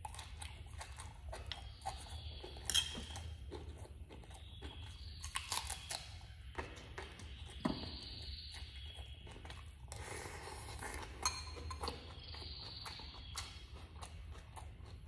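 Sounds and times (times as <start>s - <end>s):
sharp food crunch: 0.0s - 8.7s
chewing and biting food: 0.0s - 15.0s.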